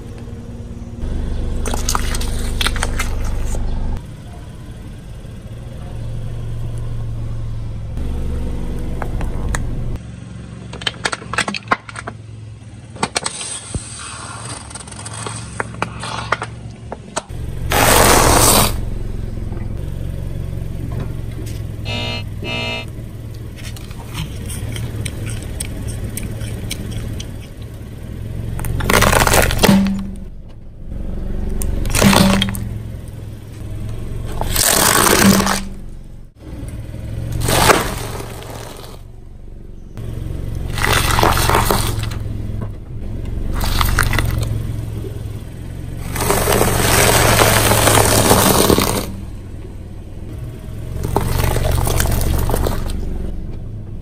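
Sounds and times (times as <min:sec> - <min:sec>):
steady low hum: 0:00.0 - 0:10.7, 0:15.1 - 0:37.3
car tyre crushing objects: 0:01.0 - 0:03.8, 0:10.5 - 0:36.4, 0:37.0 - 0:53.9.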